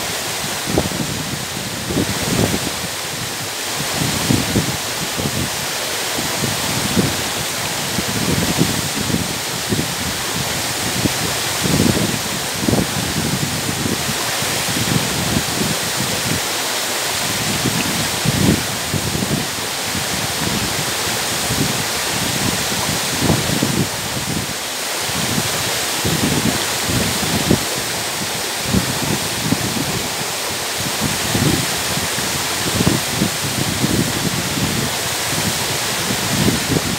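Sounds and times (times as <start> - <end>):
waterfall rushing over rock: 0.0 - 36.9.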